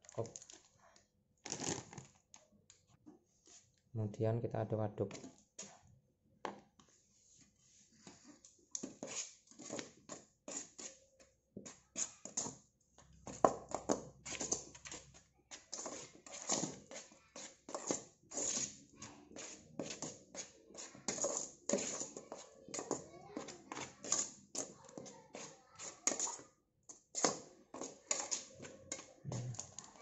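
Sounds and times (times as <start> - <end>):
spoon stirring flour in metal pot: 6.6 - 30.0.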